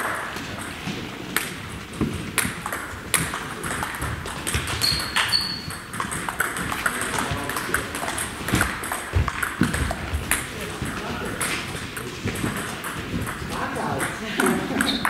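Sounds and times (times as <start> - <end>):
table tennis ball clicking: 1.3 - 15.0
brief high squeak: 4.8 - 5.7.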